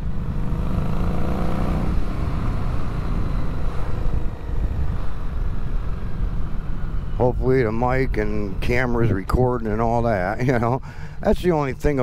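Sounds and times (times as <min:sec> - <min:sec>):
motorcycle engine running: 0:00.0 - 0:07.3
wind noise on microphone: 0:03.6 - 0:06.2.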